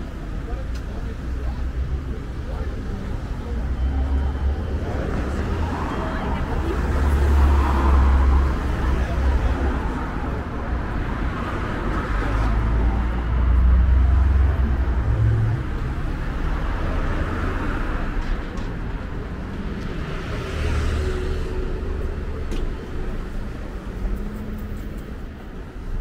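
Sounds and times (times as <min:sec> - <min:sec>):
cars driving past: 0:01.6 - 0:26.0.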